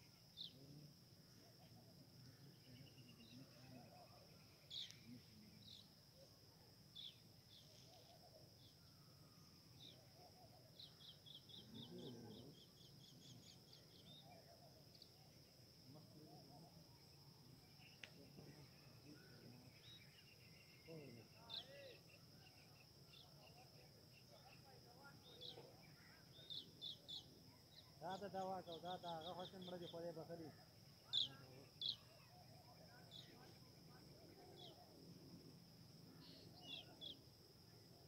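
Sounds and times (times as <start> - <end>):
high insect drone: 0.0 - 38.0
bird chirps: 2.5 - 6.0, 16.3 - 34.9, 36.1 - 37.2.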